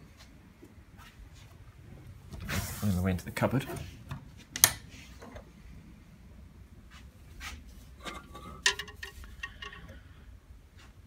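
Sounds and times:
coat hangers sliding on metal rail: 7.4 - 10.0.

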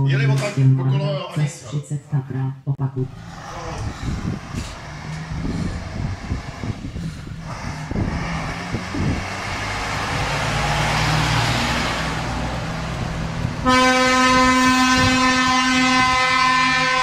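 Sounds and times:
fire engine diesel engine: 3.0 - 17.0
air horn steady tone: 13.6 - 17.0.

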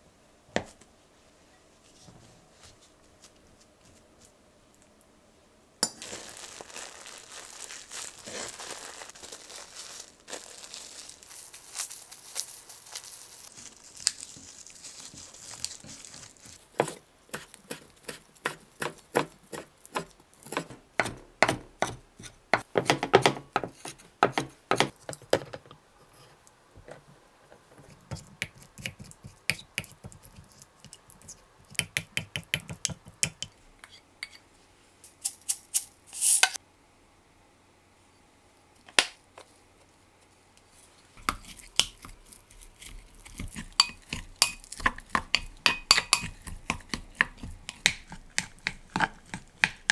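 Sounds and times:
plastic wrap crinkling: 5.9 - 16.8
knife chopping on wooden board: 16.8 - 24.9.

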